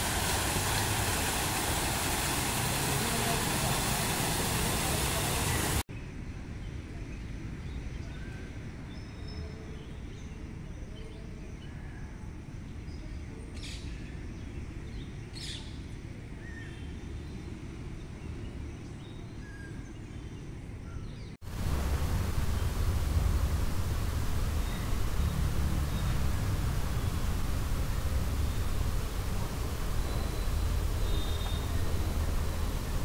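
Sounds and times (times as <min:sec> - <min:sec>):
low background rumble: 0:21.5 - 0:33.0
bird chirps: 0:29.6 - 0:32.9.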